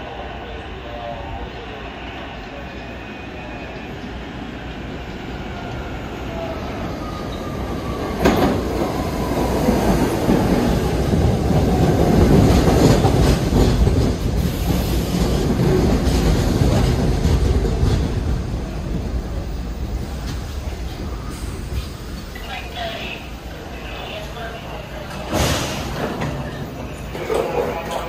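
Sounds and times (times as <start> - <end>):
subway train rumbling: 0.0 - 28.0.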